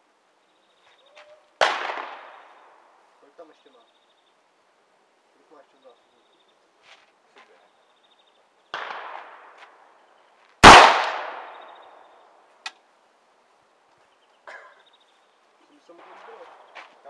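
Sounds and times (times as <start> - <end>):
rifle shots: 1.6 - 2.6, 8.7 - 9.6, 10.6 - 11.7.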